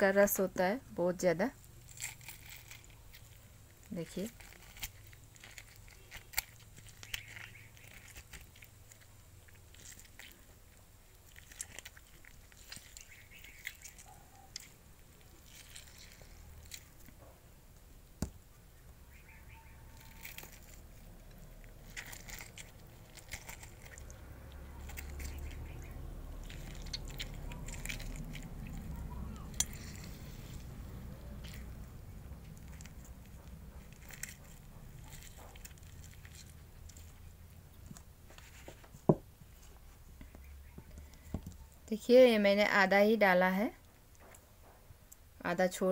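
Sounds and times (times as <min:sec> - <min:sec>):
lemon being squeezed by hand: 0:19.0 - 0:39.1.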